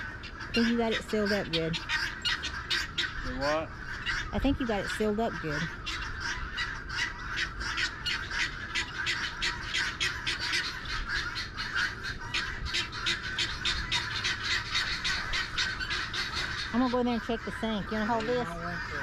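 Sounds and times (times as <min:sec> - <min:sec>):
guinea fowl chattering: 0:00.0 - 0:19.0.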